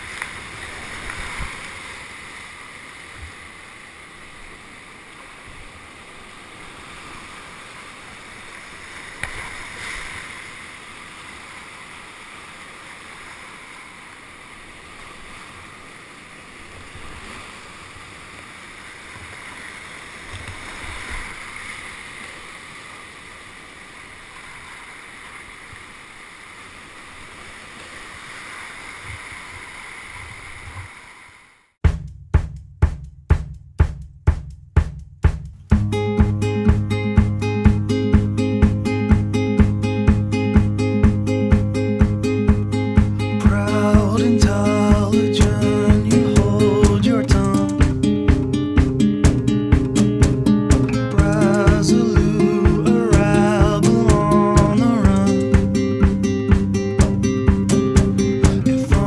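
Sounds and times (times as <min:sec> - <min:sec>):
rushing whitewater: 0:00.0 - 0:31.7, 0:35.9 - 0:59.0
dull knocks: 0:31.9 - 0:59.0.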